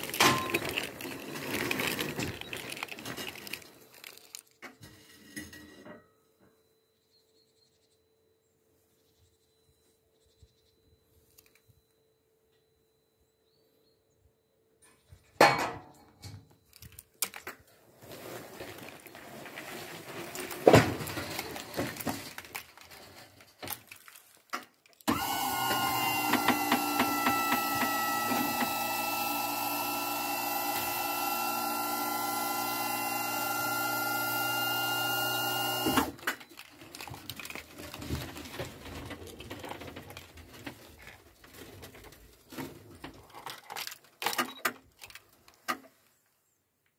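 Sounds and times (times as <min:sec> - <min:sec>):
electric lift motor running: 0:25.1 - 0:36.2.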